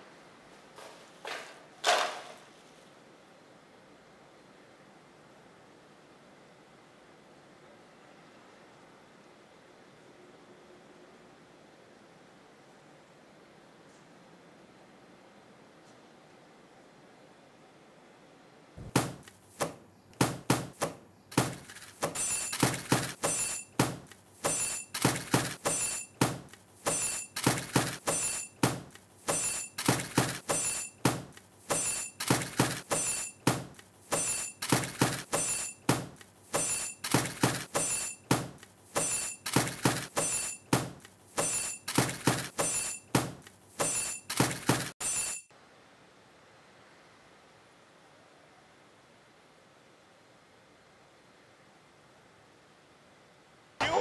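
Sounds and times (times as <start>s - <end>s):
rhythmic clattering percussion beat: 20.2s - 45.4s.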